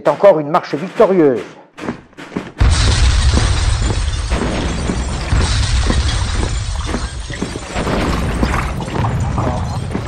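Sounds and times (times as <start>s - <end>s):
gunfire cracks and crashes: 2.6s - 9.8s.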